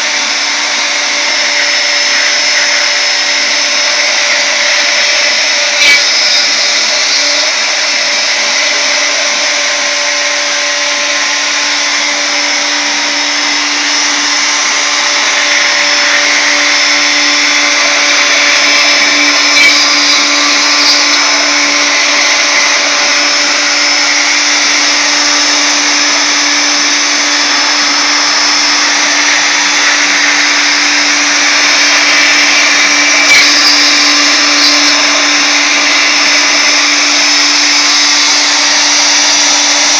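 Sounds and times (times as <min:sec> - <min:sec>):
router motor whine: 0:00.0 - 0:39.9.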